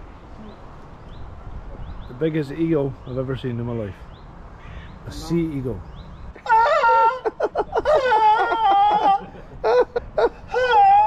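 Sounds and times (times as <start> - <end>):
person wailing and whimpering: 6.4 - 9.5, 10.2 - 11.0.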